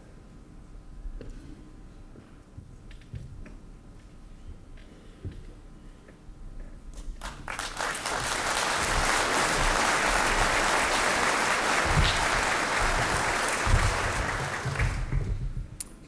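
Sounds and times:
audience applauding: 0:07.2 - 0:15.3
low thuds: 0:11.8 - 0:15.8.

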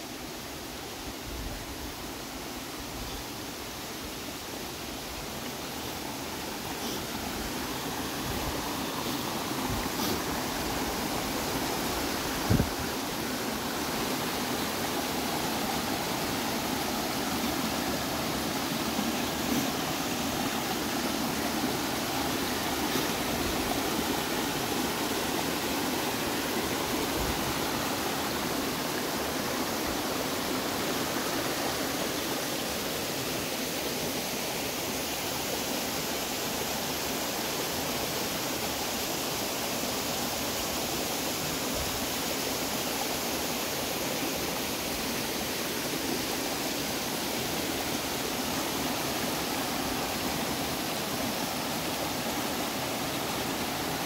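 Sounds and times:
creek water splashing over rocks: 0:05.1 - 0:34.5.

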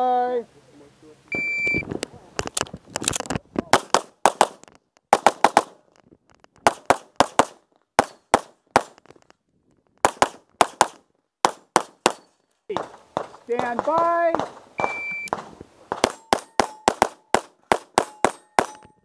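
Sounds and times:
rapid pistol shots: 0:03.7 - 0:05.8, 0:06.6 - 0:09.0, 0:10.0 - 0:18.8.

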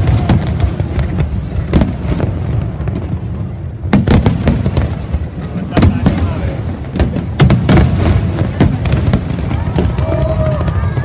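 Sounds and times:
firework cracks: 0:00.0 - 0:11.0
fireworks bursting: 0:00.0 - 0:11.0
sharp firework bangs: 0:03.9 - 0:11.0.

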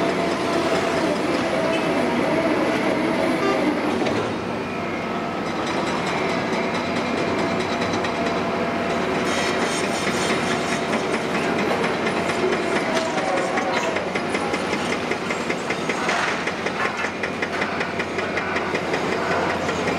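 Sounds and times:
diesel excavator engine: 0:00.0 - 0:19.9
track chains clanking and squeaking: 0:05.4 - 0:19.9.

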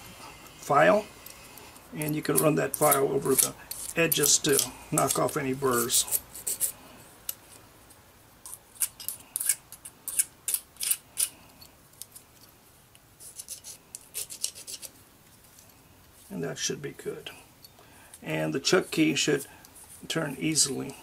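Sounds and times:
hand file on aluminum strip: 0:02.0 - 0:07.4, 0:08.5 - 0:11.3, 0:13.2 - 0:14.9.

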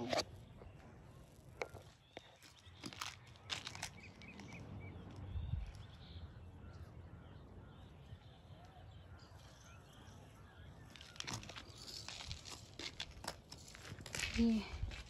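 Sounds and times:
wind rumble on microphone: 0:04.3 - 0:08.6.

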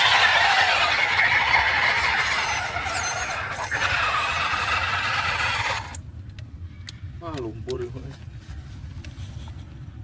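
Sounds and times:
electric motor whining: 0:00.0 - 0:06.0.

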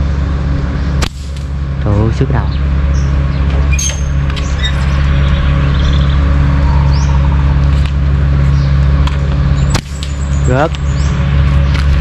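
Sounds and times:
engine humming at low speed: 0:00.0 - 0:12.0
bird chirps: 0:02.4 - 0:08.8.

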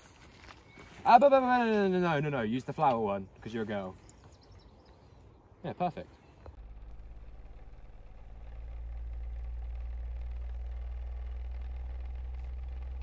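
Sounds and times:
low hum: 0:03.2 - 0:13.0.

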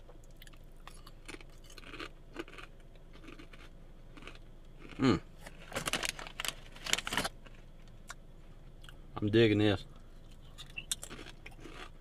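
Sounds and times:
chewing crunchy chip: 0:00.2 - 0:08.2, 0:10.3 - 0:12.0
chip bag crinkling: 0:05.5 - 0:07.6.

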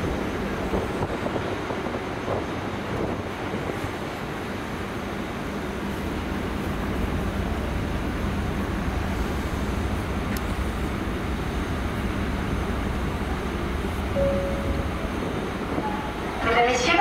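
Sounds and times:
wind buffeting microphone: 0:00.0 - 0:05.9
ship engines humming: 0:00.0 - 0:17.0.

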